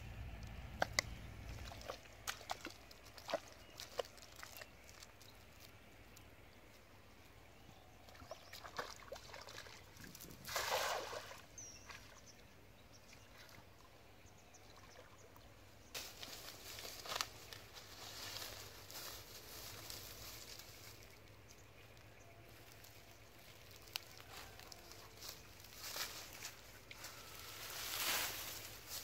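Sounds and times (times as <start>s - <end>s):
wading through mud and water: 0.2s - 6.7s, 7.4s - 29.0s
net splashing on water: 10.4s - 11.4s
footsteps in dry grass and leaves: 15.9s - 29.0s.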